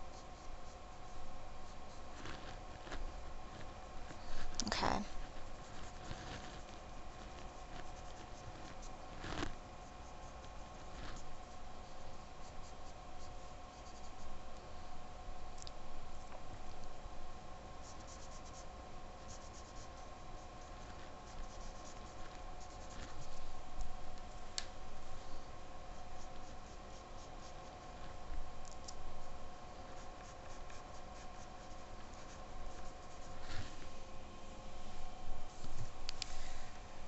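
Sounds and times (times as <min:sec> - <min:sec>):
pastel scratching on paper: 0:00.0 - 0:14.3, 0:17.8 - 0:23.5, 0:25.9 - 0:28.2, 0:29.1 - 0:33.9
faint steady hum: 0:00.0 - 0:37.0.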